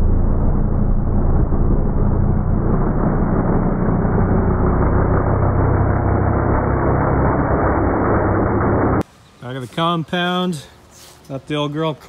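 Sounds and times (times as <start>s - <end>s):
car engine running at low revs: 0.0s - 9.0s.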